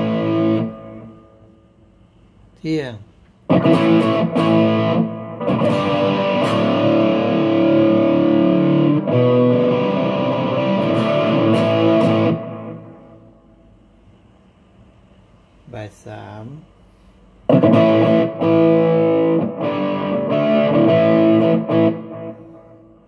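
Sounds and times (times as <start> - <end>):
distorted electric guitar: 0.0 - 1.5, 3.5 - 13.3, 17.5 - 23.0.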